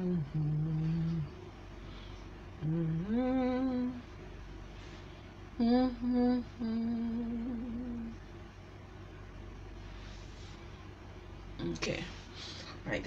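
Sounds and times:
woman humming: 0.0s - 1.3s, 2.6s - 4.0s, 5.6s - 8.2s.

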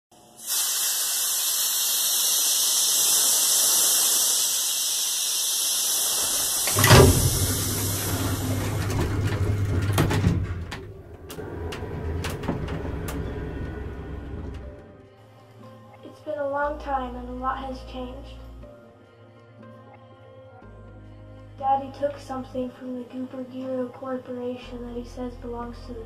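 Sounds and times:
loud steady hiss: 0.3s - 8.5s
low rumble: 6.7s - 15.0s.

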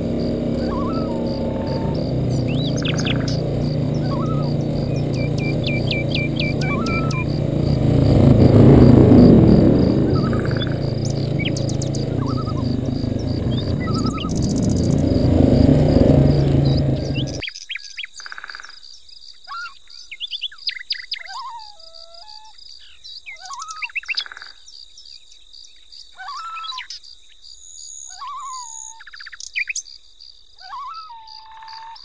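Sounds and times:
songbirds whistling: 0.0s - 7.8s, 9.1s - 17.4s
loud low rumble: 0.0s - 17.4s.

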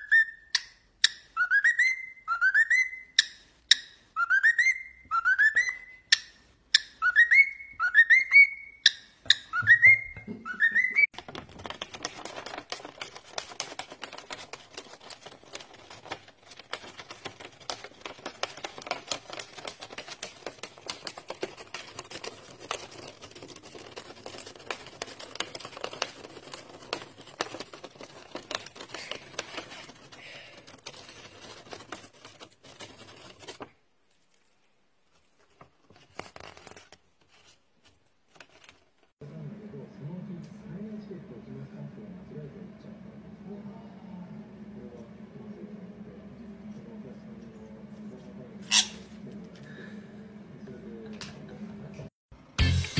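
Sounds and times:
cockatiel whistling: 0.0s - 11.1s
rapid clicking and crackling: 11.1s - 33.7s.

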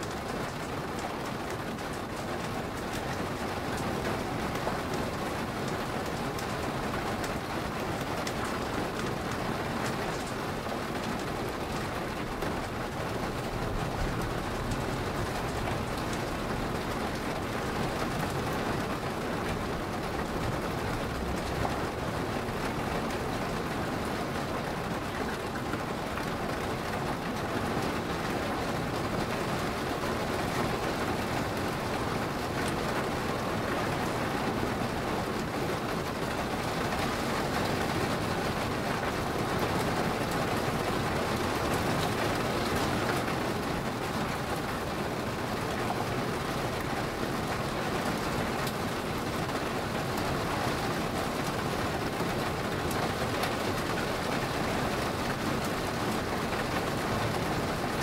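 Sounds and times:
steady rain hissing: 0.0s - 58.0s.

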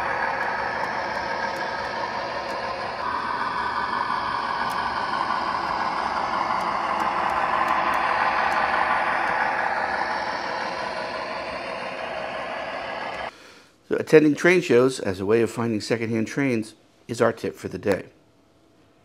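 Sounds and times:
model train rolling rumble: 0.0s - 13.3s.

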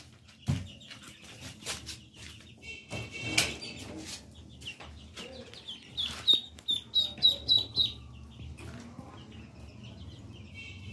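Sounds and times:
duckling peeps: 3.5s - 8.1s.

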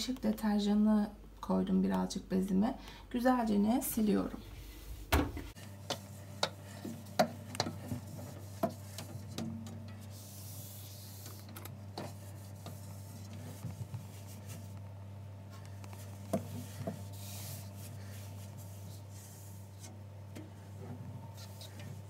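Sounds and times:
steady low hum: 0.0s - 22.0s
cloth rubbing plastic: 10.0s - 14.9s, 15.6s - 20.0s, 20.6s - 22.0s.

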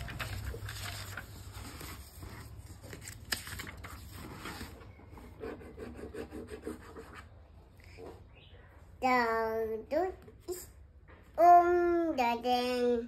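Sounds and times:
rubbing and scraping handling: 0.0s - 8.4s.

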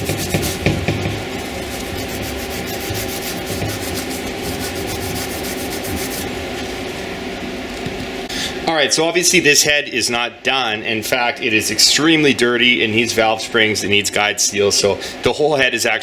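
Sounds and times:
abrasive pad scrubbing metal: 0.0s - 6.4s.

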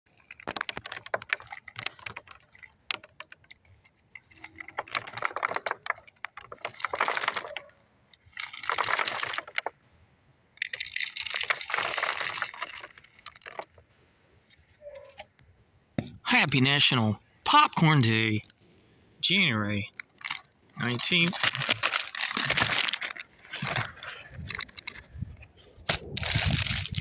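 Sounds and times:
popcorn being poured: 10.7s - 13.6s.

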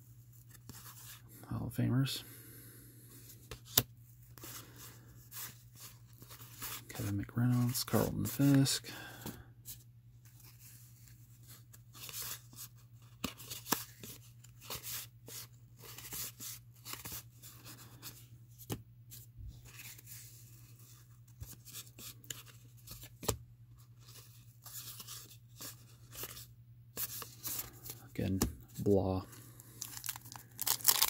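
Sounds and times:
cards flicking and rustling: 3.4s - 4.6s, 10.2s - 18.8s, 19.6s - 23.4s, 29.7s - 31.0s.

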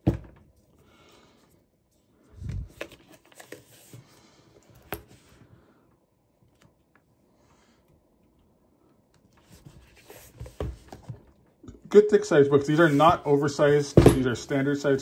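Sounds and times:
book covers tapping and rustling: 2.6s - 4.1s, 9.4s - 11.3s.

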